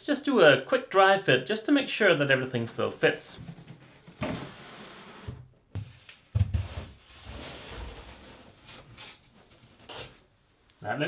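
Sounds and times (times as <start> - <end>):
box scraping on wood: 3.4 - 5.4.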